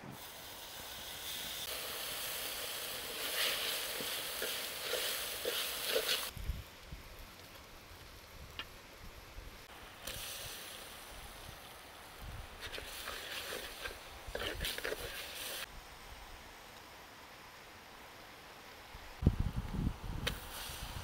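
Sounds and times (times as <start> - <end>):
wok sizzling: 0.0 - 15.7, 20.1 - 21.0.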